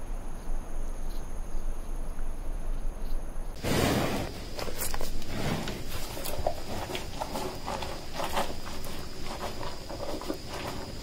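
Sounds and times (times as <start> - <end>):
high insect trill: 0.0 - 11.0
warthog rustling and snuffling: 3.6 - 11.0.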